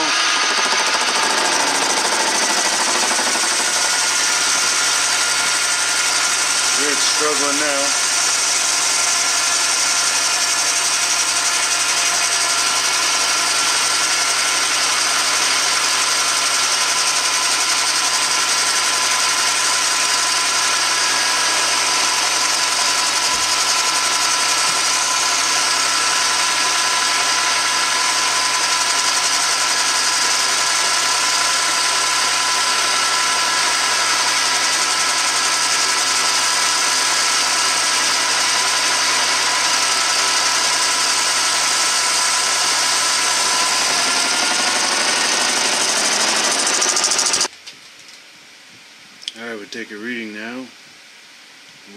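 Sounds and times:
metal lathe cutting steel: 0.0 - 47.5.

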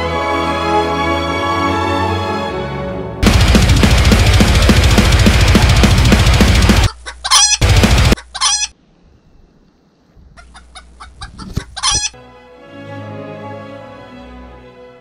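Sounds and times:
orchestral string music: 0.0 - 6.7, 12.2 - 15.0
heavy rock music: 3.2 - 7.0, 7.6 - 8.2
chicken clucking: 6.8 - 8.7, 10.2 - 12.2.

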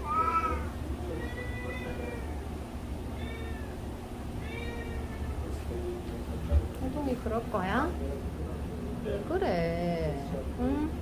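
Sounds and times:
cat meowing: 0.0 - 2.5, 3.1 - 3.8, 4.4 - 5.5.

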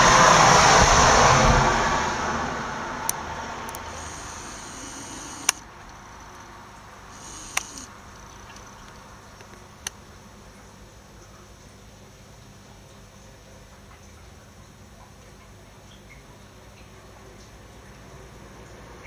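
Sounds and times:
short sharp clicks: 3.7 - 6.0, 7.2 - 7.9.

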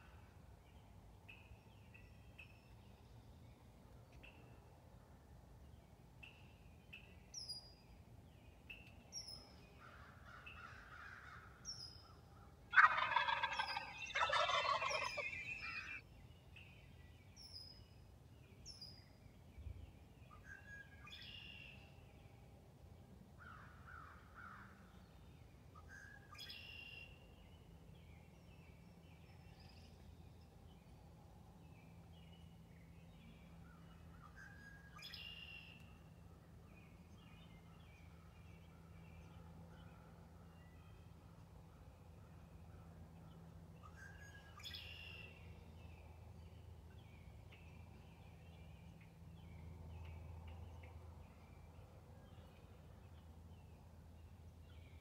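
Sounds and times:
songbirds chirping: 0.1 - 55.0
turkey gobbling: 12.7 - 16.0.

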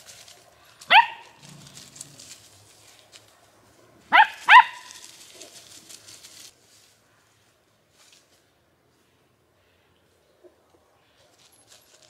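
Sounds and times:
paws rustling in dry leaves: 0.0 - 8.4, 11.1 - 12.0
dog barking high-pitched: 0.9 - 1.4, 4.1 - 5.0.

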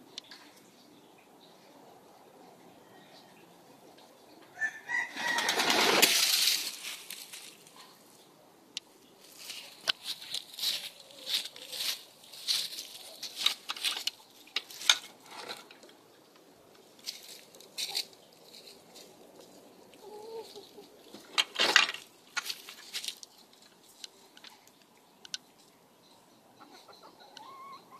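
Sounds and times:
footsteps crunching dry leaves: 4.9 - 7.8, 9.2 - 15.3, 17.0 - 19.8, 22.0 - 23.3
chickens clucking: 19.3 - 21.4, 23.8 - 27.9.

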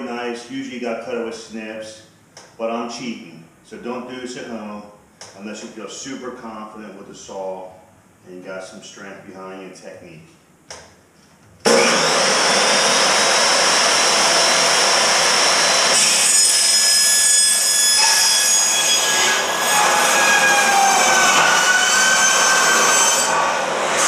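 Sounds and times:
chop saw cutting sheet metal: 11.7 - 24.0.

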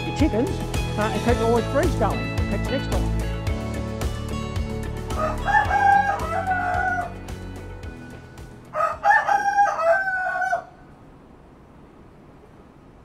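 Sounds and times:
background music: 0.0 - 9.6
rooster crowing: 5.1 - 7.3, 8.7 - 10.9.

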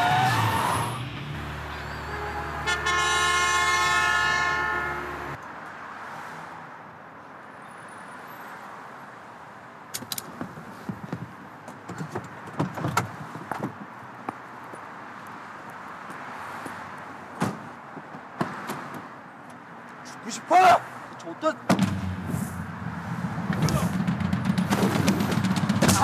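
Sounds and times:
car horn: 1.7 - 5.4.

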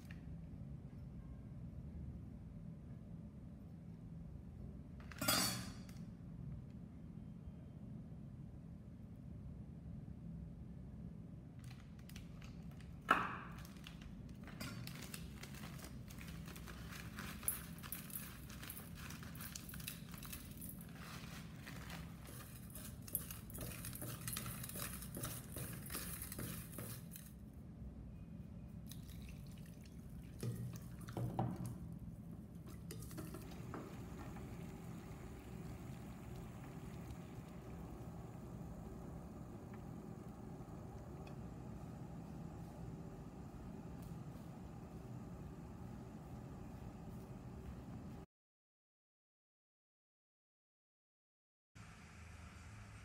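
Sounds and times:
shrimp rustling in a bowl: 14.8 - 27.3
water boiling in a pot: 29.0 - 31.8, 32.7 - 48.2.

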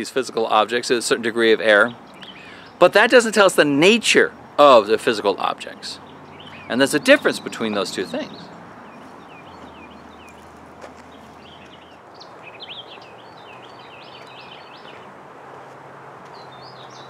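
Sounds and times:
steady background hiss: 0.0 - 9.4
birds chirping and singing: 1.5 - 15.1, 16.3 - 17.0.

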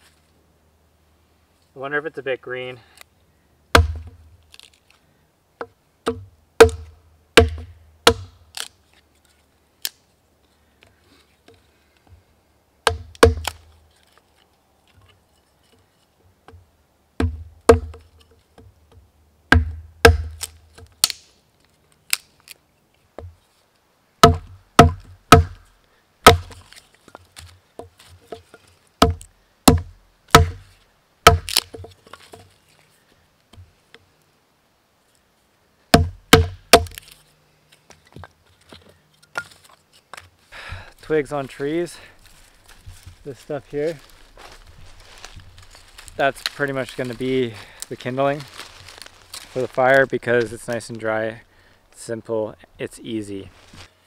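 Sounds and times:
hatchet splitting kindling: 3.8 - 4.8, 12.9 - 14.2, 19.6 - 21.2, 24.2 - 25.6, 26.2 - 32.5, 36.0 - 37.2.

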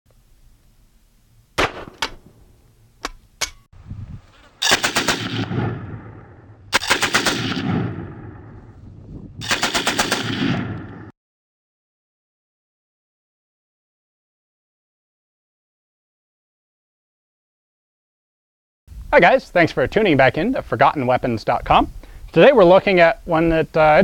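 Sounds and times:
shotgun shots: 1.6 - 2.5, 4.6 - 8.6, 9.4 - 11.1
machine-gun bursts: 4.6 - 5.4, 6.8 - 7.6, 9.4 - 10.4.

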